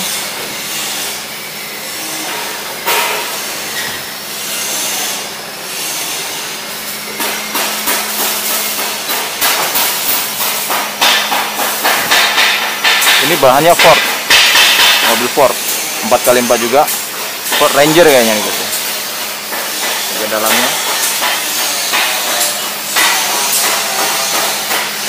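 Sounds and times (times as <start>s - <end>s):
hammering on metal: 7.2s - 15.5s, 17.1s - 25.0s.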